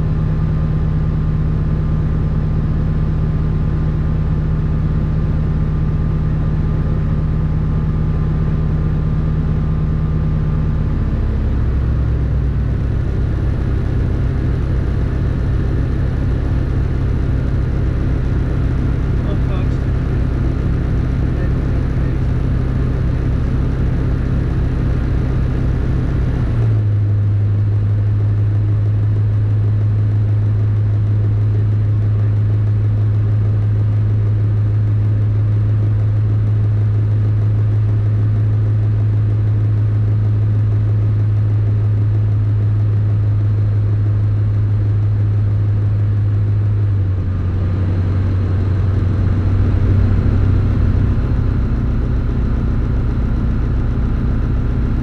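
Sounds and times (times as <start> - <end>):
light aircraft engine drone: 0.0 - 55.0.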